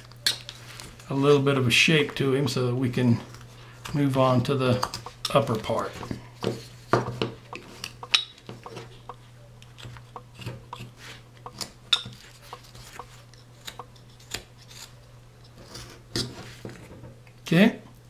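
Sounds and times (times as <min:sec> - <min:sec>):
knife scraping cuts in wood: 0:09.8 - 0:16.5.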